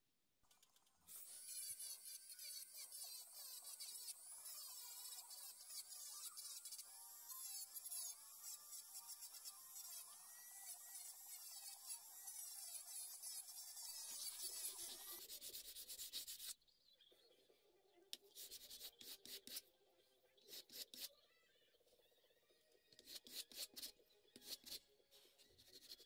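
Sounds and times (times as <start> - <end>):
wood rubbed on sandpaper: 12.7 - 16.5.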